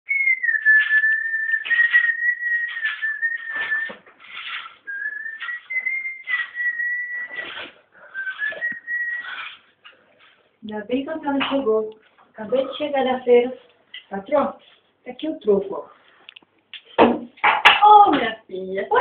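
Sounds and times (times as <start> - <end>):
person whistling high notes: 0.1 - 9.6.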